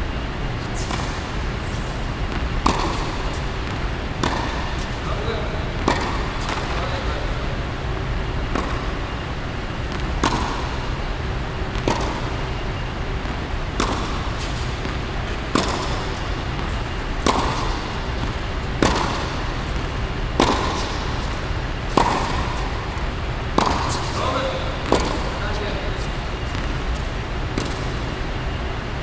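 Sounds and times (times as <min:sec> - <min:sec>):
steady hum: 0:00.0 - 0:29.0
tennis racket hitting ball: 0:02.3 - 0:05.0, 0:05.8 - 0:06.9, 0:08.5 - 0:09.1, 0:09.8 - 0:10.9, 0:11.7 - 0:12.6, 0:13.2 - 0:25.4, 0:26.5 - 0:28.2.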